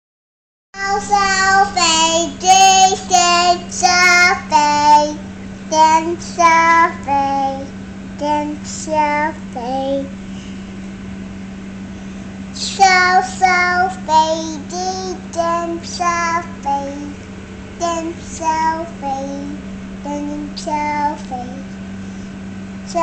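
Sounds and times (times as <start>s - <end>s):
girl singing a children's song: 0.8s - 10.2s, 12.6s - 17.2s, 17.8s - 21.7s
steady low hum: 0.8s - 23.0s.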